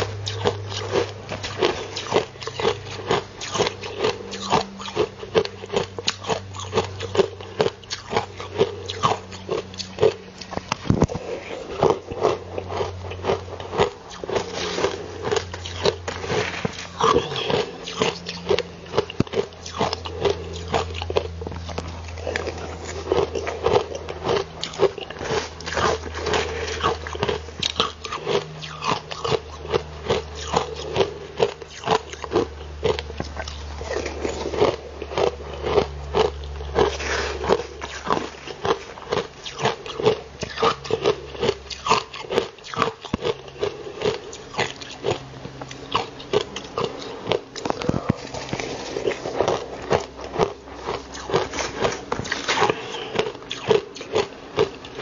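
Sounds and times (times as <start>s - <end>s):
chewing and crunching ice: 0.0s - 55.0s.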